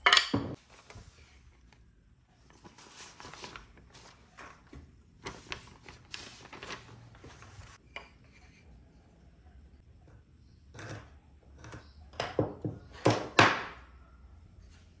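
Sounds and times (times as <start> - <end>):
paper rustling: 0.6 - 1.8, 2.4 - 7.8.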